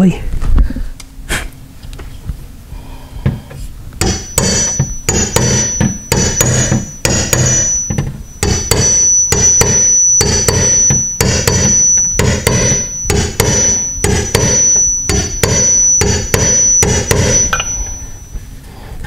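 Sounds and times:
hammer tapping on metal: 3.2 - 18.4.

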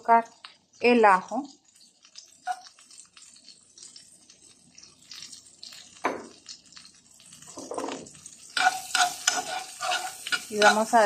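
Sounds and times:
butter sizzling in a frying pan: 0.0 - 11.0.

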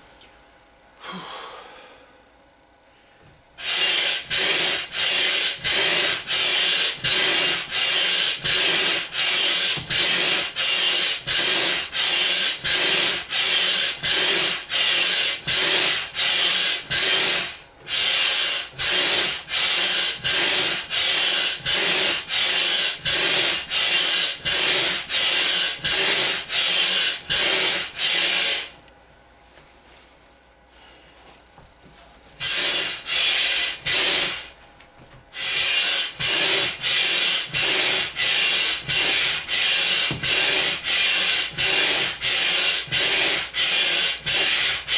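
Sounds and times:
hand air pump strokes: 3.6 - 28.8, 32.4 - 34.6, 35.3 - 44.9.

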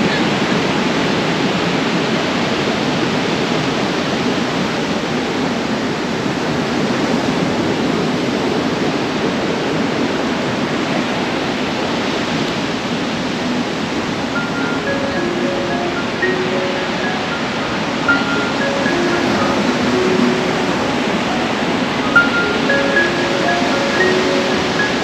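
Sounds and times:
wind: 0.0 - 25.0
sea surf rushing: 13.5 - 25.0.

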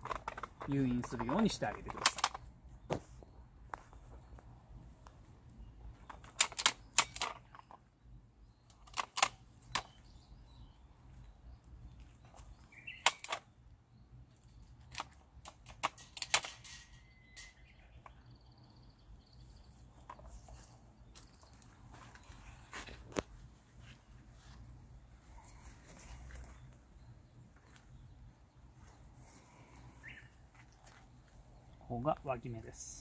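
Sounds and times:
pruning shears clicking: 12.9 - 13.4.

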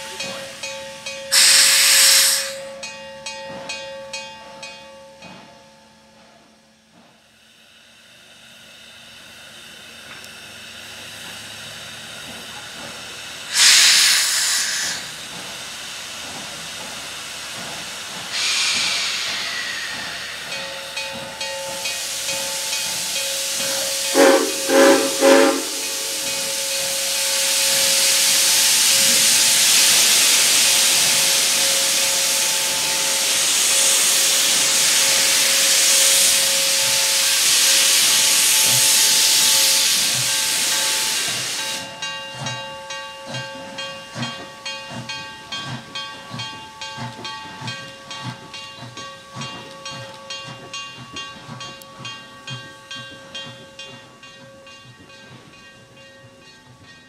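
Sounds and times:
steam hissing: 0.0 - 3.0, 7.3 - 48.7
steam whistle blasts: 1.3 - 2.7, 13.5 - 15.1, 18.4 - 20.4, 23.4 - 26.6
steam release bursts: 1.3 - 2.8, 13.2 - 42.0.

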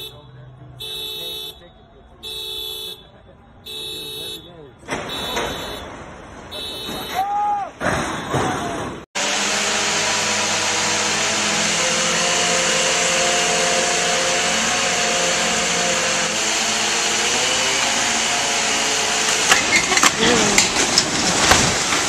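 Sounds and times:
crane engine droning: 9.2 - 22.0.

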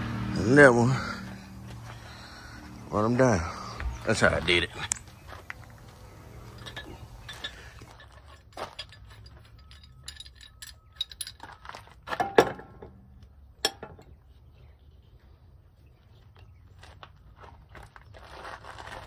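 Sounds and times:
metal tools clinking: 3.9 - 13.0.

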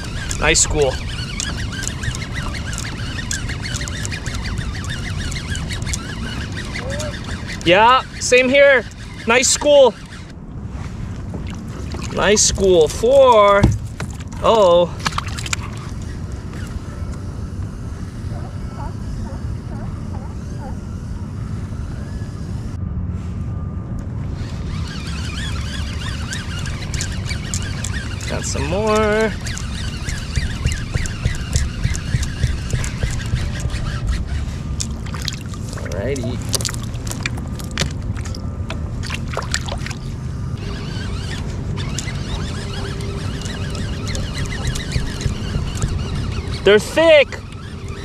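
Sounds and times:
wind buffeting microphone: 0.0 - 48.0
faint warbling tones: 23.5 - 48.0
sharp clicks and knocks: 26.1 - 35.8, 41.1 - 46.7.

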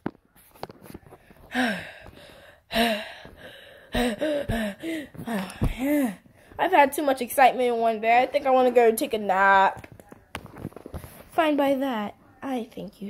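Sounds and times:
child gasping: 1.5 - 6.2.

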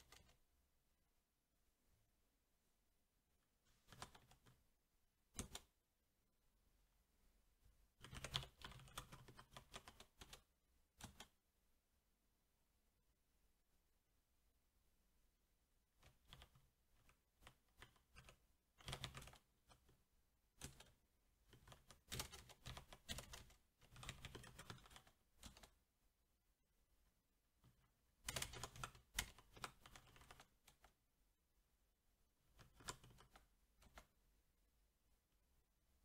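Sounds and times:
mechanical keyboard typing: 0.0 - 0.4, 3.8 - 4.6, 5.3 - 5.8, 8.0 - 11.4, 16.0 - 20.0, 20.6 - 25.8, 28.2 - 31.0, 32.5 - 34.1.

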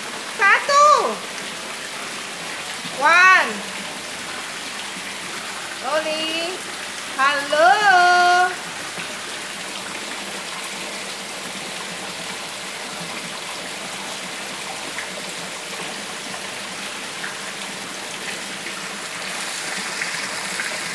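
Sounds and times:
rain falling: 0.0 - 20.9.

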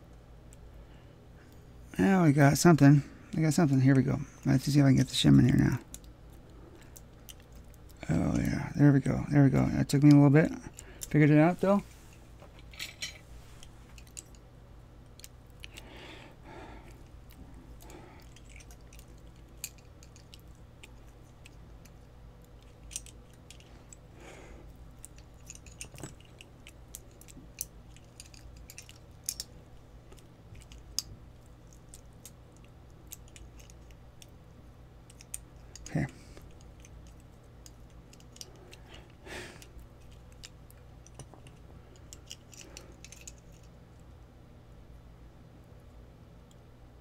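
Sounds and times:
steady low hum: 0.0 - 47.0
metallic clicks of lock picking: 22.6 - 24.0, 25.0 - 29.5, 35.1 - 38.8.

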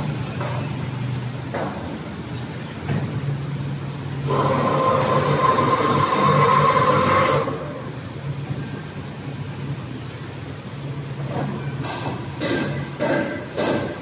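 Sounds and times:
low machine hum: 0.0 - 11.8
machine high whine: 4.3 - 9.0.

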